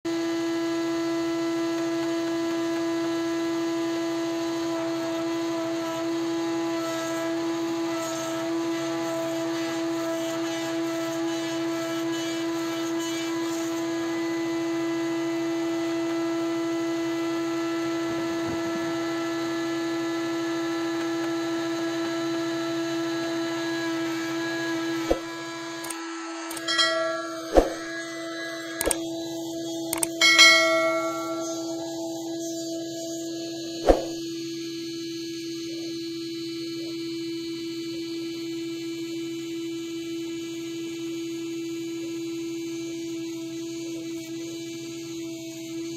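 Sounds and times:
bandsaw sawmill humming: 0.1s - 38.7s
sharp knock: 26.8s - 28.0s, 33.8s - 34.2s.

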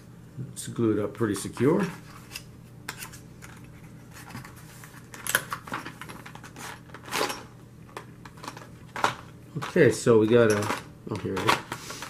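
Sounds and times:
cardboard and plastic packaging rustling: 3.0s - 12.0s.

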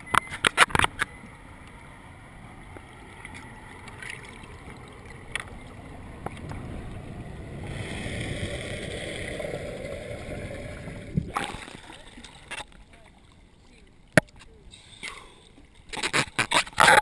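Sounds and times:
low underwater rumble: 1.2s - 11.8s.

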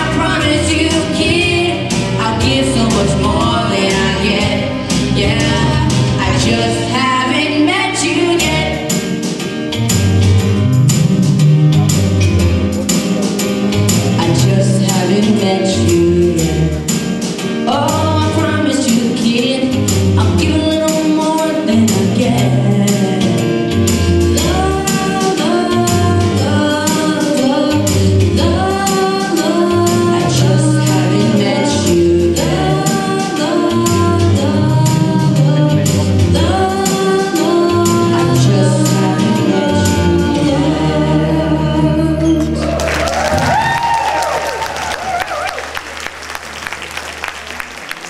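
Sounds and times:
boys singing a pop song: 0.0s - 9.2s, 14.1s - 42.8s
music with a steady beat: 0.0s - 41.9s.

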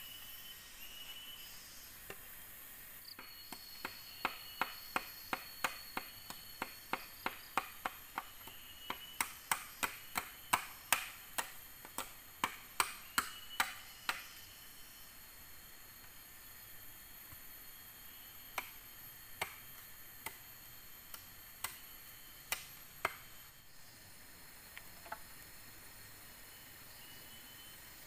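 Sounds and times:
insects buzzing: 0.0s - 28.0s
machete chopping bamboo: 3.5s - 14.4s, 18.5s - 18.8s, 19.4s - 20.4s, 21.1s - 21.9s, 22.5s - 23.3s.

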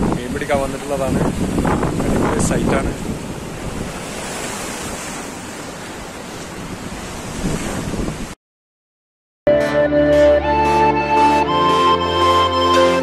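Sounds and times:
surf washing over rocks: 0.0s - 8.4s
wind on microphone: 0.0s - 8.4s.

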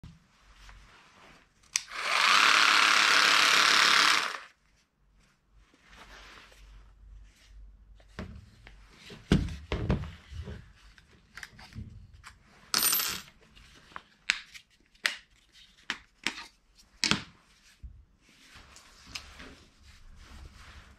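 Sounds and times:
handheld power tool running: 1.8s - 4.5s.

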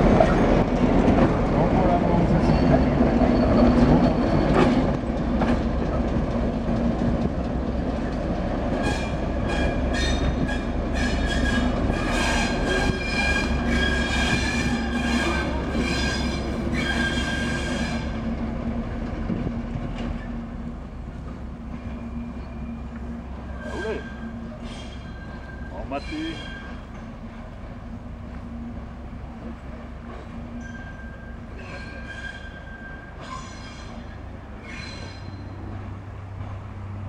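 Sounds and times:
diesel locomotive engine hum: 0.0s - 37.0s
wheels squealing on rails: 1.8s - 5.0s, 8.0s - 18.4s, 21.8s - 27.5s, 30.0s - 36.0s.

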